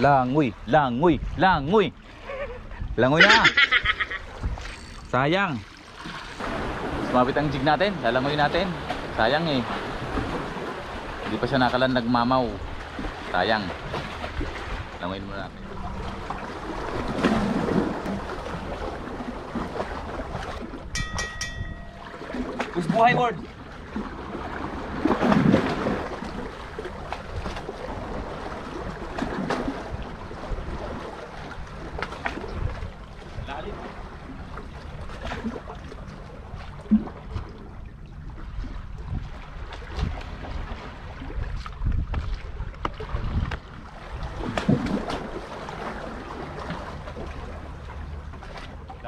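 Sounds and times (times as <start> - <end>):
water splashing from swimming: 1.9 - 49.0
wind rumble: 12.4 - 46.6.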